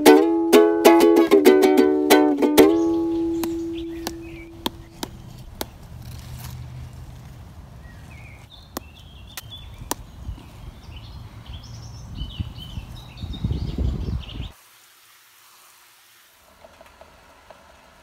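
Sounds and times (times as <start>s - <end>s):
ukulele note: 0.0s - 5.7s
small birds chirping: 2.5s - 14.6s.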